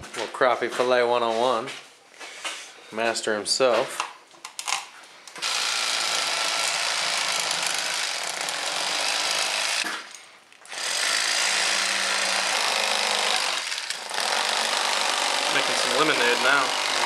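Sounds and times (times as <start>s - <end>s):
electric fillet knife buzzing: 5.4s - 17.0s.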